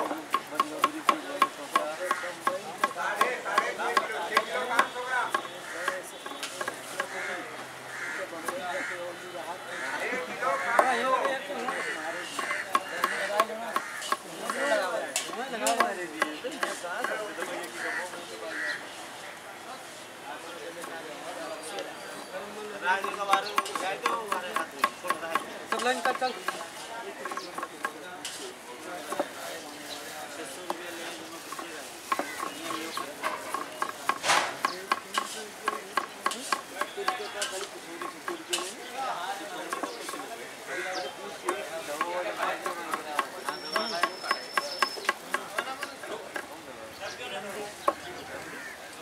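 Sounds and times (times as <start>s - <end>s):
knife chopping on wooden block: 31.5s - 37.2s.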